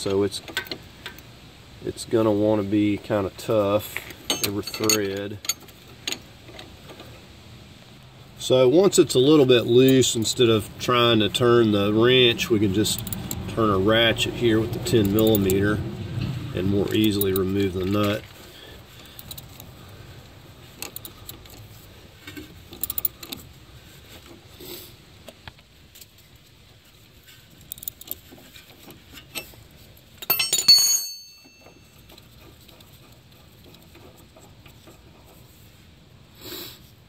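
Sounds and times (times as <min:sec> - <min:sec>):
metal tools clattering: 0:04.2 - 0:05.7, 0:30.2 - 0:32.4
hand ratchet clicking: 0:12.9 - 0:13.5, 0:15.0 - 0:15.6, 0:19.0 - 0:19.7, 0:22.7 - 0:23.4, 0:27.6 - 0:28.3.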